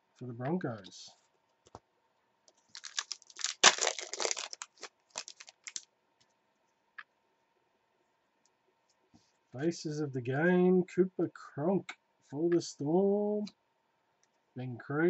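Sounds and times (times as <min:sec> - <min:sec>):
wrapper crackling and crinkling: 0:02.6 - 0:05.8.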